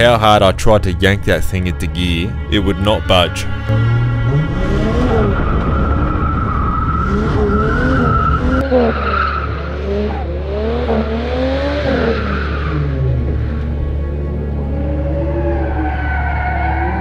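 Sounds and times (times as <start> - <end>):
car engine revving: 0.8 - 17.0
tyres squealing and skidding: 2.3 - 13.6, 14.6 - 17.0.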